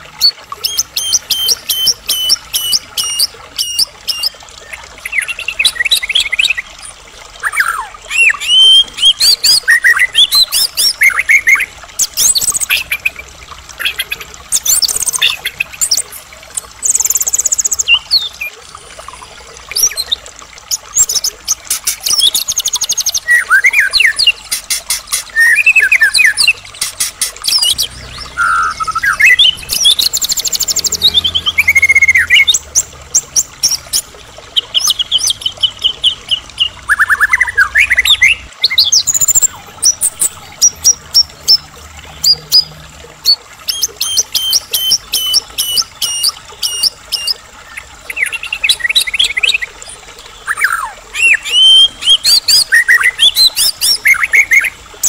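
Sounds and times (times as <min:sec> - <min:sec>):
bird singing varied song: 0:25.1 - 0:32.9.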